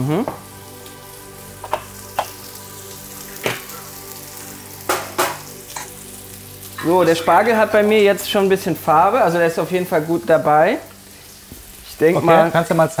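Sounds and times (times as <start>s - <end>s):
vegetables sizzling in a pan: 0.0s - 13.0s
crockery clinking: 4.9s - 6.0s.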